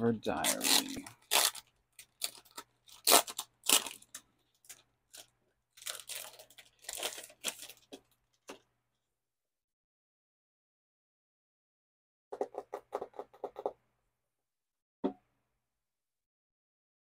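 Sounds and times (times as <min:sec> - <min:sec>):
packaging rustling and crinkling: 0:00.4 - 0:08.7.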